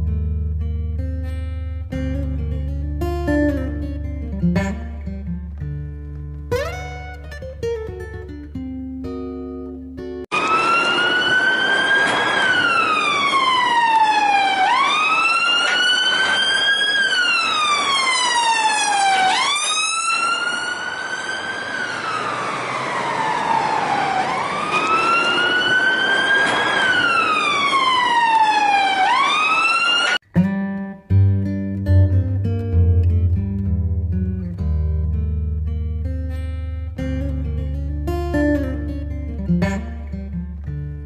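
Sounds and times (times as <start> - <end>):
toy electronic siren wailing: 10.3 - 30.2.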